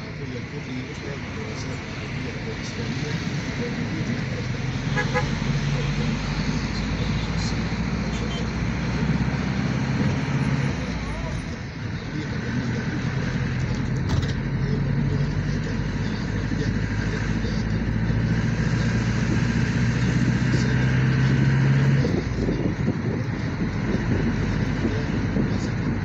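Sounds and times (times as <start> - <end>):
road noise: 0.0 - 26.0
vehicle engine hum: 0.0 - 26.0.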